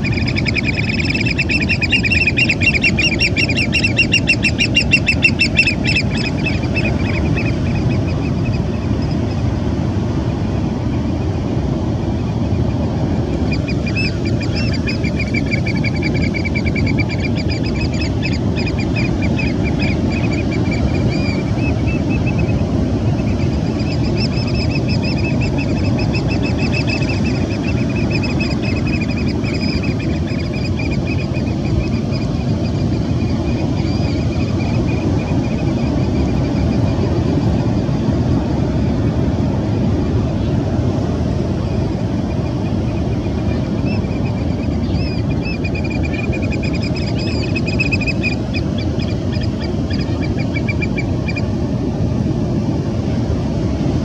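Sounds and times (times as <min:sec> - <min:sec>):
bird chirping rapidly: 0:00.0 - 0:09.3, 0:13.4 - 0:22.5, 0:23.2 - 0:37.0, 0:43.2 - 0:51.5.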